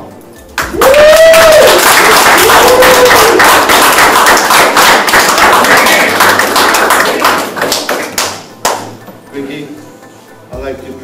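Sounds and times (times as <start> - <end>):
audience applauding: 0.6 - 8.9.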